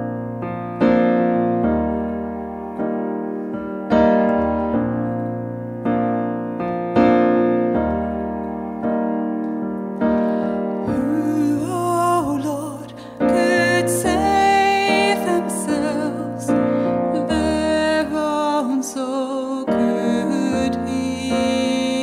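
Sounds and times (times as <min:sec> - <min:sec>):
low bass piano notes: 0:00.0 - 0:22.0
piano chords: 0:00.0 - 0:22.0
person singing: 0:10.4 - 0:22.0.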